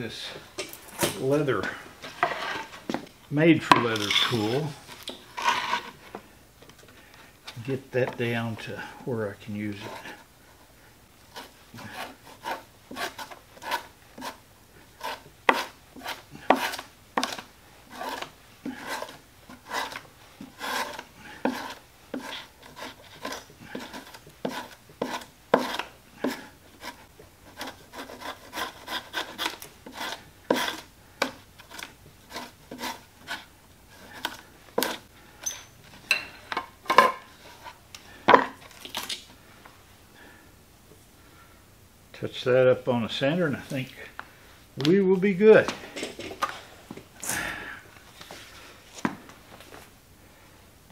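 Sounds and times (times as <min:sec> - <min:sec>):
tool scraping leather: 0:03.8 - 0:06.1, 0:11.3 - 0:35.8.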